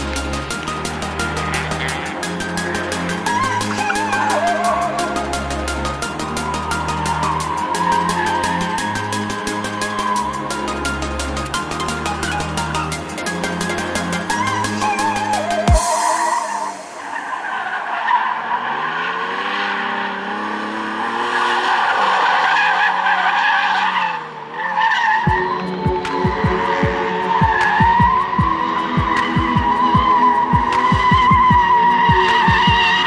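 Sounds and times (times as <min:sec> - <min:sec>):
electronic music beat: 0:00.0 - 0:17.7, 0:25.3 - 0:33.0
car engine revving: 0:00.0 - 0:33.0.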